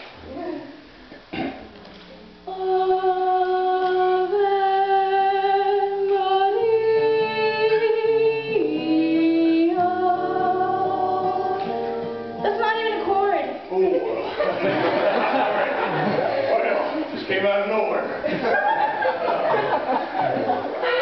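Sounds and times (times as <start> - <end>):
acoustic guitar: 0.0 - 14.8
woman singing long notes: 2.4 - 13.2.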